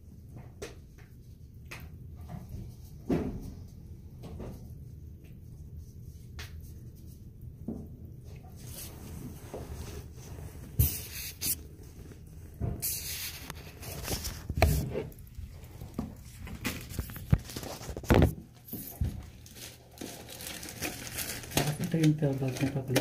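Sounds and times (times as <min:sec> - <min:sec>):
rustling: 0:08.4 - 0:23.0.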